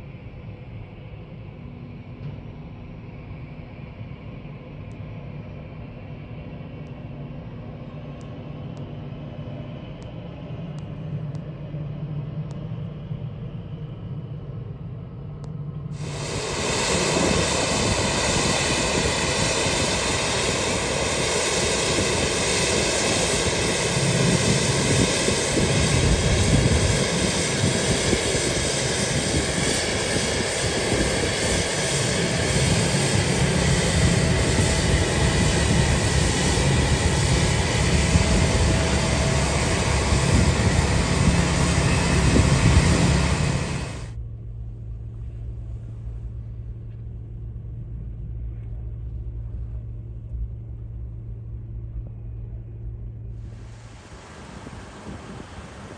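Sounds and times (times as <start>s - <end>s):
jet engine low hum: 0.0s - 55.9s
loud jet roar: 16.0s - 44.2s, 53.5s - 55.9s.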